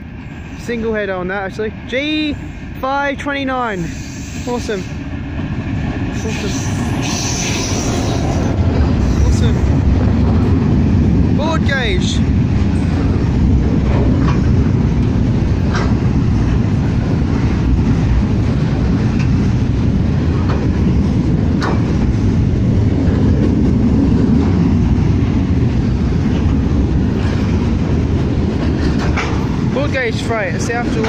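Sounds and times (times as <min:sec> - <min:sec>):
train wheels rumbling on rail: 0:00.0 - 0:31.0
sharp rail clicks: 0:06.2 - 0:31.0.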